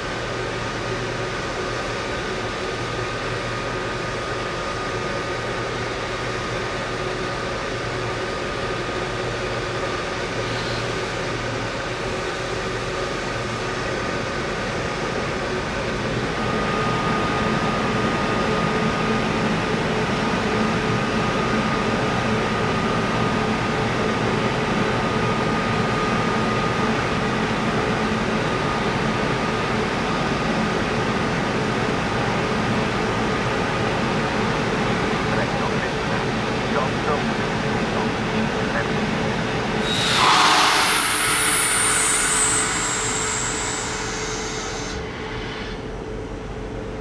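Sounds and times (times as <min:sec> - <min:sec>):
high whine: 0:39.8 - 0:47.0.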